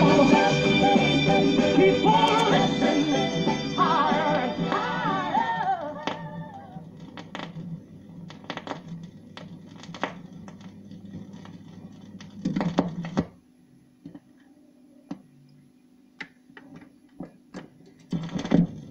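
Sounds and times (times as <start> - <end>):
record player hum: 0.0 - 18.9
stylus clicks and crackle: 7.0 - 13.3.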